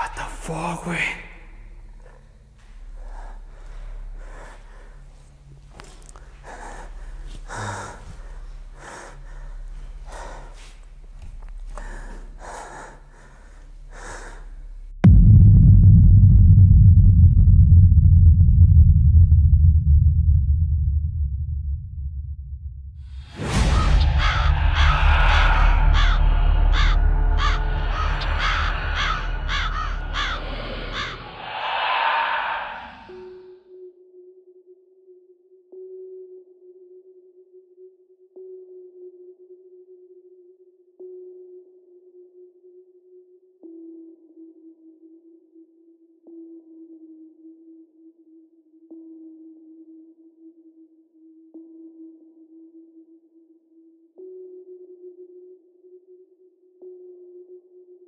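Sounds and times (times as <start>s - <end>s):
man breathing heavily: 2.8s - 14.8s, 24.1s - 33.4s
low rumbling drone: 14.4s - 33.4s
whoosh: 23.3s - 33.4s
crow cawing: 23.7s - 33.3s.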